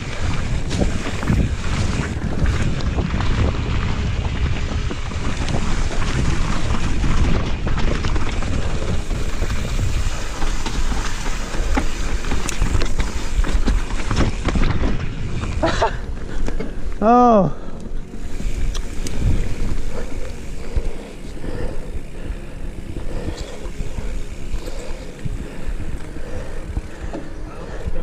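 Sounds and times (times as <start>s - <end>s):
tyres rumbling on dirt: 0.0s - 16.7s
wind buffeting microphone: 0.0s - 17.0s, 17.7s - 28.0s
bike knocking and rattling: 0.0s - 28.0s.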